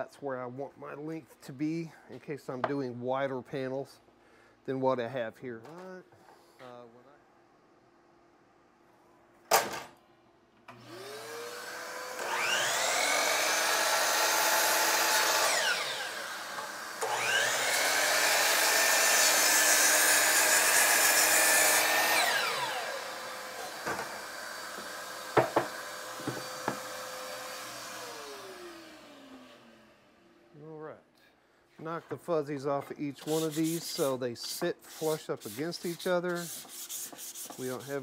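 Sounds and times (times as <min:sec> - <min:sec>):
miter saw cutting plywood: 0:10.7 - 0:30.1.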